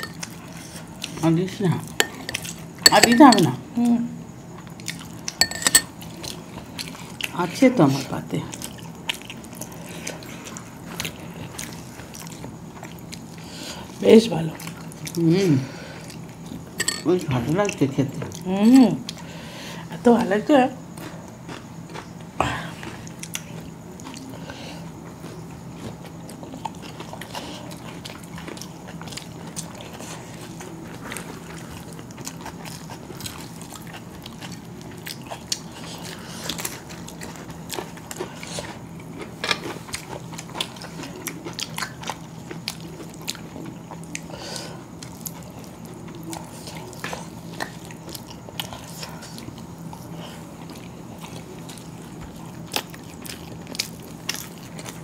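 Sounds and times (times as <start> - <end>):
low steady hum: 0.0 - 55.0
chewing and lip-smacking: 4.6 - 5.4, 8.5 - 13.4, 20.9 - 24.5, 25.1 - 44.3, 44.9 - 55.0.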